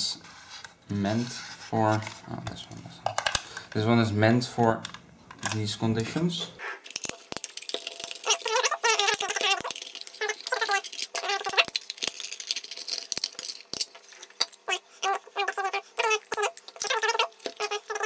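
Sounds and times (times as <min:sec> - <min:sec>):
screws squeaking: 0:08.2 - 0:11.8, 0:14.4 - 0:18.0.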